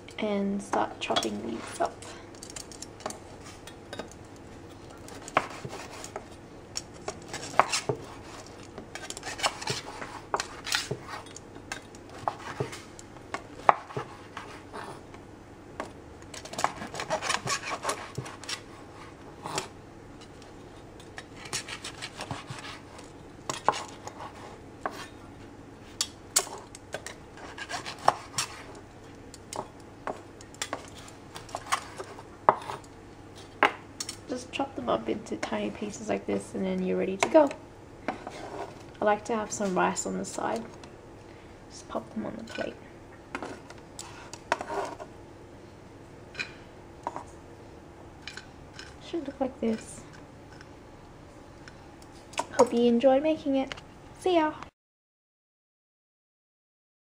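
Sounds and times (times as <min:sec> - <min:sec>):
knife chopping on wooden board: 0:05.3 - 0:06.2, 0:27.4 - 0:28.6
knife rasping through crispy meat: 0:27.4 - 0:28.7.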